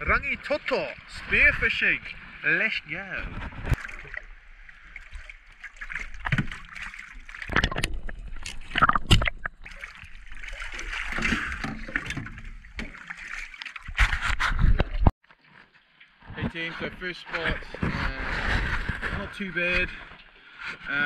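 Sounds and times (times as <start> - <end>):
sea water sloshing and splashing: 0.2 - 16.3.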